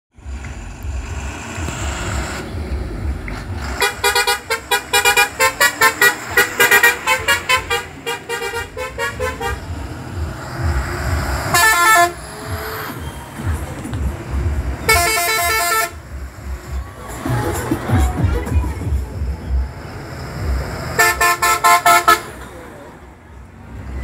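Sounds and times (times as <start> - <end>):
bus engine and road rumble: 0.1 - 24.0
multi-tone bus horn toots: 3.7 - 9.8, 10.4 - 12.7, 14.8 - 16.1, 20.8 - 22.5
long horn blast: 3.8 - 9.7, 11.4 - 12.2, 14.9 - 16.0, 20.9 - 22.4.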